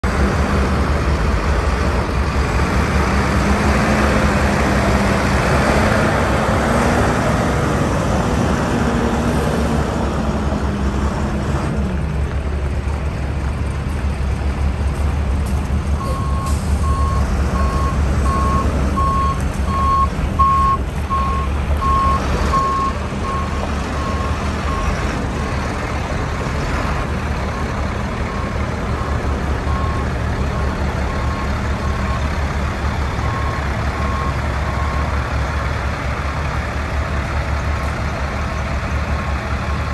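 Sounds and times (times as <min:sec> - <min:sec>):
engine revving: 0:00.0 - 0:11.9
diesel truck engine idling: 0:09.9 - 0:39.9.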